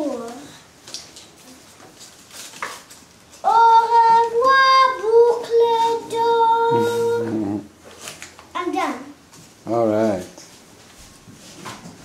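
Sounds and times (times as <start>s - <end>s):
girl singing held notes: 3.4s - 7.6s.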